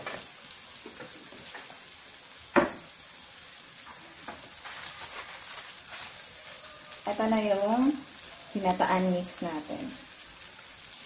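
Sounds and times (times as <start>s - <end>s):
food sizzling in a wok: 0.0s - 11.0s
sharp knock: 2.5s - 2.8s.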